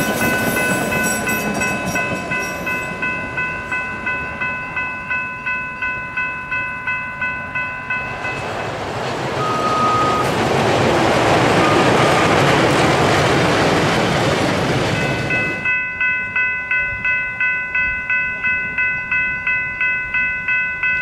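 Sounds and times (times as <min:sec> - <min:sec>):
crossing warning bell dinging: 0:00.0 - 0:21.0
train passing rumble: 0:00.0 - 0:21.0
brief high tone: 0:09.4 - 0:10.3.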